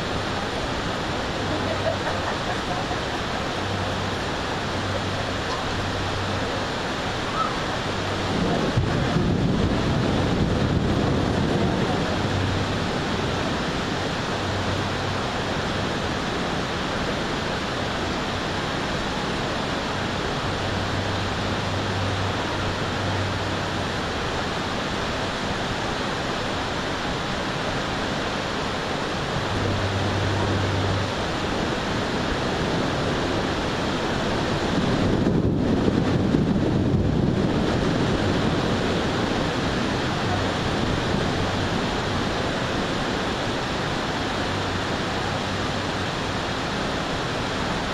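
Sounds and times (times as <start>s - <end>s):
heavy rain hissing: 0.0s - 47.9s
wind: 0.0s - 47.9s
low rumble of thunder: 8.2s - 13.1s.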